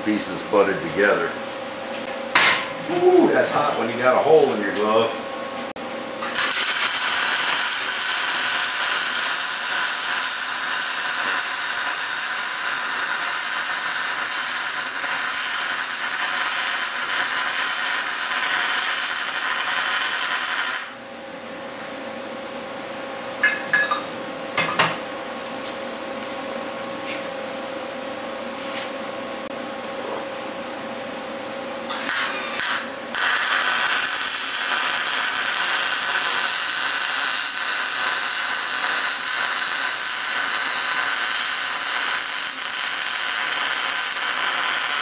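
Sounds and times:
steady hum: 0.0s - 45.0s
electric welding arc: 6.2s - 22.2s, 31.9s - 45.0s.

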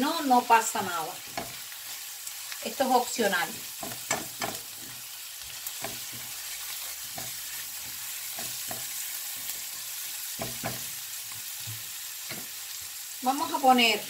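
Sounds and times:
vegetables sizzling in oil: 0.0s - 14.0s
spatula scraping pan: 3.5s - 11.4s.

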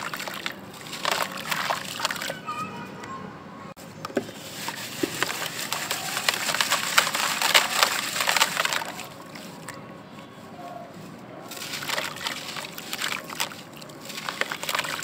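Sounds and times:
gritty block crushed by hand: 4.9s - 9.2s.

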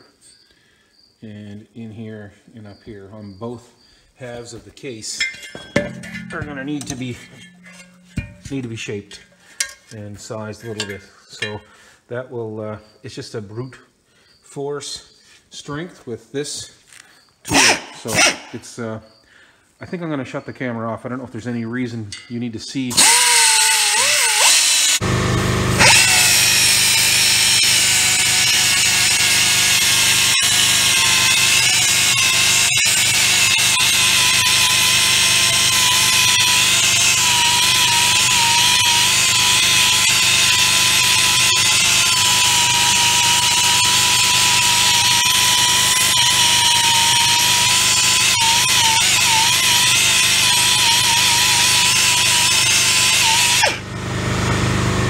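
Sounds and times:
belt sander grinding metal: 5.0s - 11.7s, 17.5s - 18.5s, 22.9s - 55.0s.

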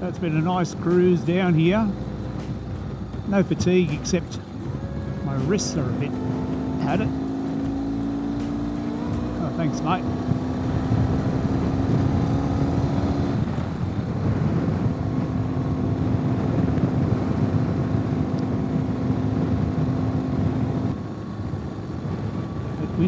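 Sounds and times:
motorcycle engine cruising: 0.0s - 23.0s
wind rush over microphone: 10.0s - 21.0s.

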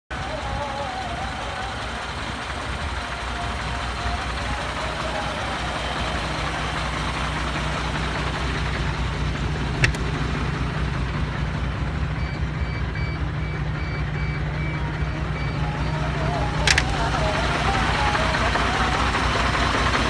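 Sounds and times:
truck diesel engine idling: 0.1s - 20.0s
sharp click: 9.8s - 10.1s, 16.7s - 17.0s
high beeps: 12.2s - 15.6s.

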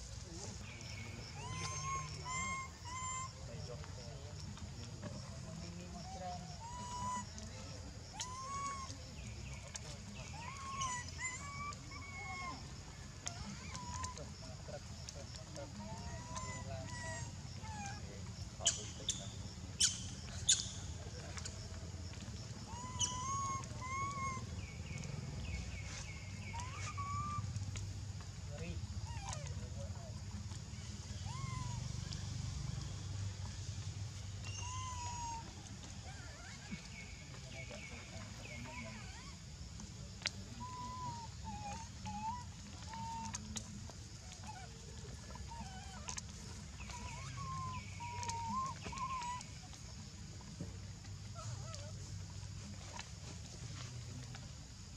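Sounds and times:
baby monkey crying: 1.2s - 4.0s, 6.0s - 7.4s, 8.0s - 8.9s, 9.8s - 14.4s, 15.6s - 18.0s, 22.6s - 25.0s, 25.9s - 27.4s, 31.1s - 31.8s, 34.4s - 36.7s, 40.6s - 43.4s, 44.3s - 46.2s, 46.8s - 49.5s.

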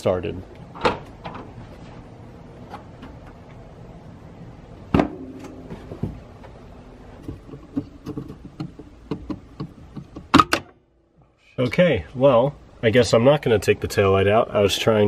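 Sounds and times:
steady low hum: 0.0s - 15.0s
plastic clicks and knocks: 7.2s - 10.7s.

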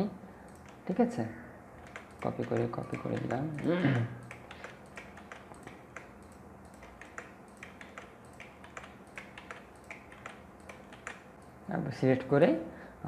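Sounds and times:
faint steady hum: 0.0s - 13.0s
mouse and keyboard clicks: 1.8s - 11.5s.

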